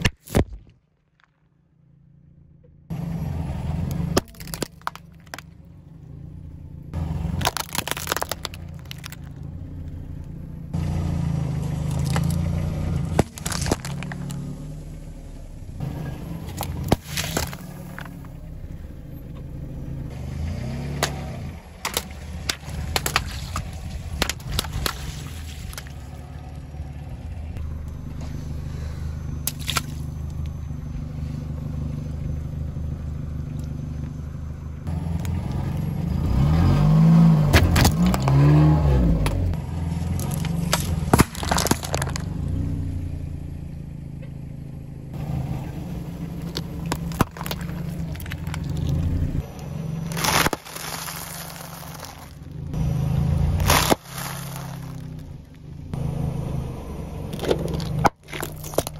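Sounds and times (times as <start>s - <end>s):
car engine running: 1.5s - 58.9s
tyre crushing objects: 7.3s - 9.4s, 13.0s - 14.4s, 16.5s - 18.3s, 21.0s - 26.0s, 37.4s - 39.4s, 40.0s - 42.4s, 46.4s - 49.1s, 50.0s - 52.5s, 53.5s - 55.2s, 57.3s - 58.9s.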